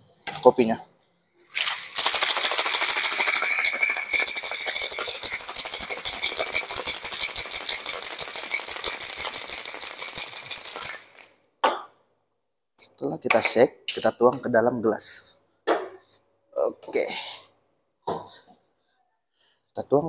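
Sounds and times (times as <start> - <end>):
ice rattling in cocktail shaker: 1.5 - 11.4.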